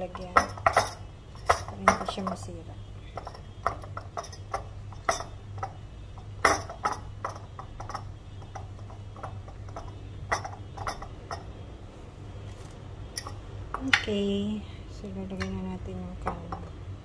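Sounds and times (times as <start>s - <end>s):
glass jar knocks and clinks: 0.2s - 2.4s, 3.2s - 5.8s, 6.4s - 11.5s.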